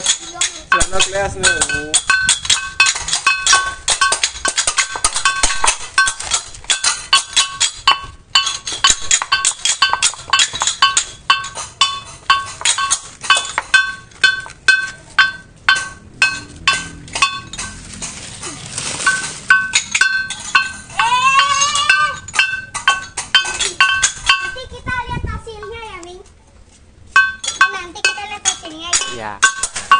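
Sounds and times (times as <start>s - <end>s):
gamelan metal percussion: 0.0s - 18.2s, 19.0s - 24.6s, 27.2s - 29.9s.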